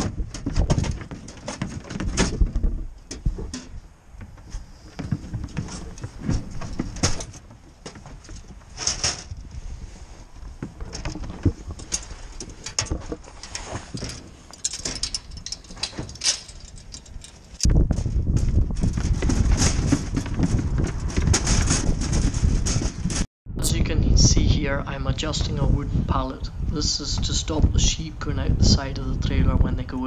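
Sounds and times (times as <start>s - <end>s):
hooves clattering on trailer floor: 0.0s - 23.3s.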